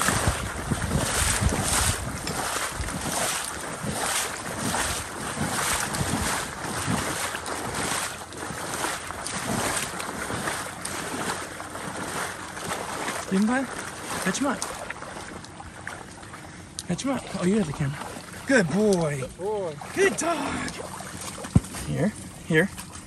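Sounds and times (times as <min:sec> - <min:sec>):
wind on microphone: 0:00.0 - 0:07.8
wading through marsh water: 0:00.0 - 0:23.0.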